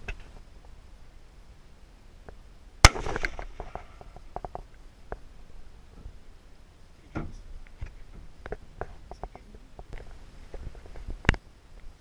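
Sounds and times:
rifle shot echo: 2.8 - 4.0.

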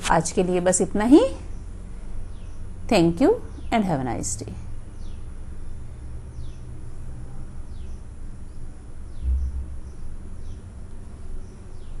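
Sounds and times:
low background rumble: 0.0 - 12.0
bird chirping: 7.7 - 12.0
low bump: 9.2 - 10.7.

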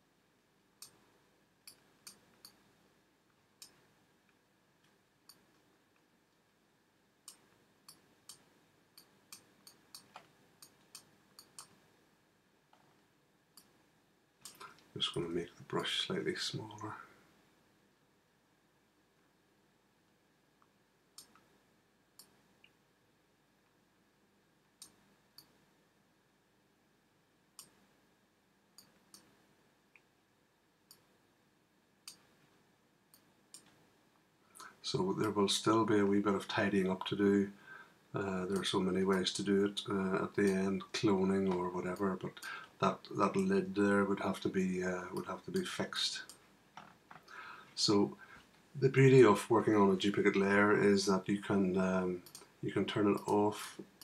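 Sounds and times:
computer mouse clicking: 7.3 - 11.8.

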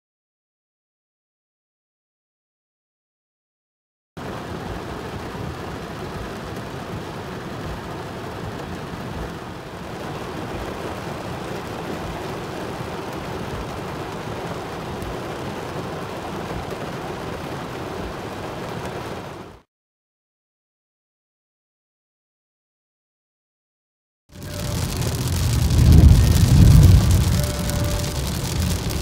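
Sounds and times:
rain drumming on car roof: 4.2 - 19.6, 24.3 - 29.0.

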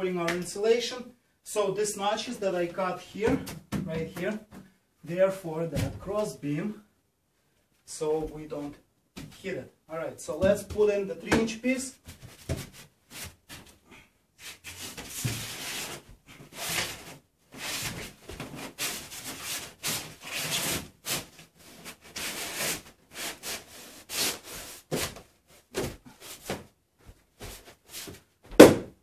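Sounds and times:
foam board scraping wood: 14.4 - 26.6.

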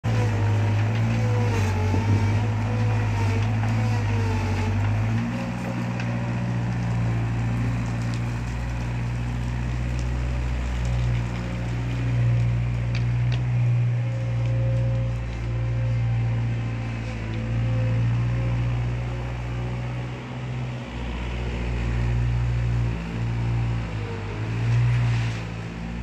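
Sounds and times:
diesel engine under load: 0.0 - 26.0.

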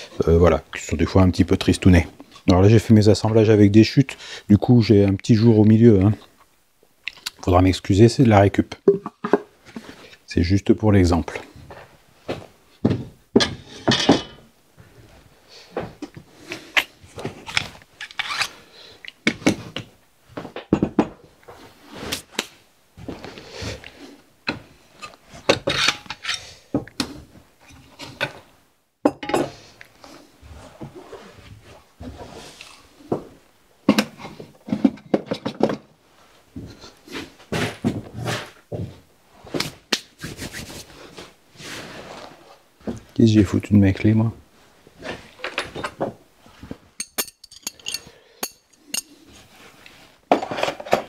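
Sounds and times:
tools knocking on wooden workbench: 20.7 - 21.2.

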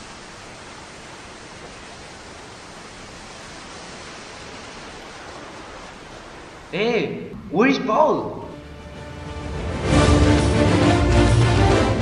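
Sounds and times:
steady hiss: 0.0 - 9.6.

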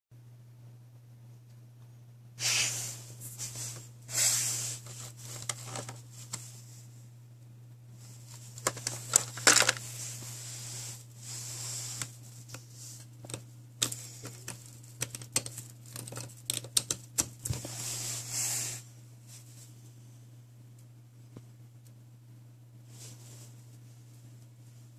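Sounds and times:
plastic packaging rustling: 4.7 - 6.4, 8.2 - 10.2.

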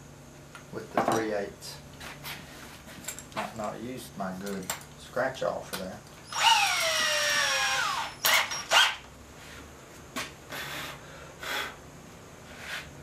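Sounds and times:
drill drilling into wood: 6.2 - 9.0
cordless drill whine: 6.2 - 9.1.

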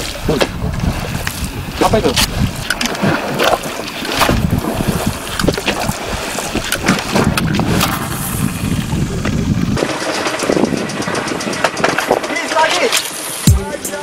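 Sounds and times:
wind buffeting microphone: 0.0 - 12.8
water sloshing against boat: 0.0 - 13.5
quick evenly spaced ticks: 9.8 - 14.0.

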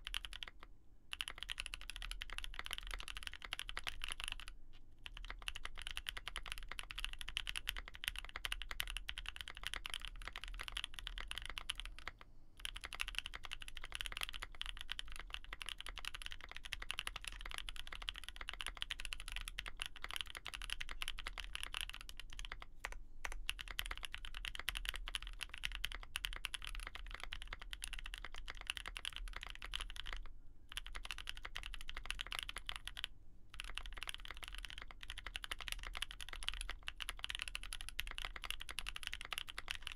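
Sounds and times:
fast typing key clacks: 0.0 - 39.9.

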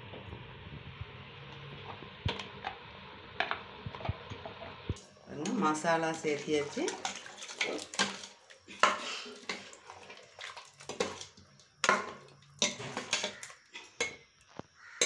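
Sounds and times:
wet sloshing gravy: 5.3 - 13.9
metal ladle scraping a pot: 6.9 - 14.2.

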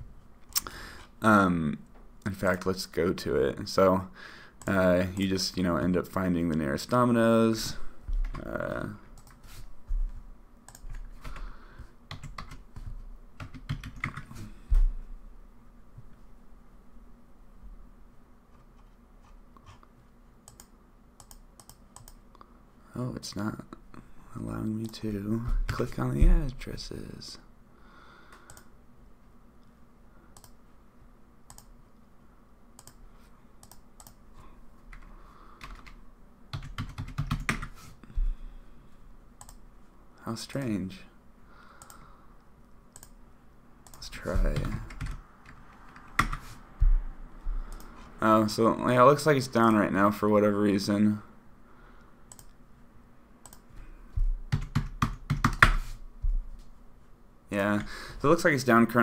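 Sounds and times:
computer keyboard typing: 12.1 - 14.3, 34.9 - 37.8, 43.8 - 46.5, 54.5 - 55.8.

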